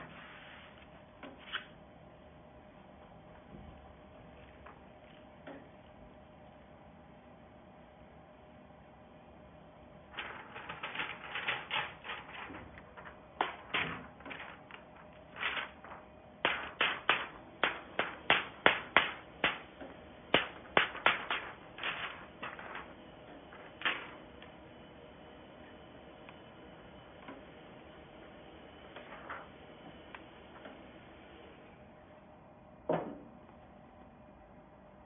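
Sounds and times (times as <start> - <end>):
plastic film crackling: 10.2 - 24.2.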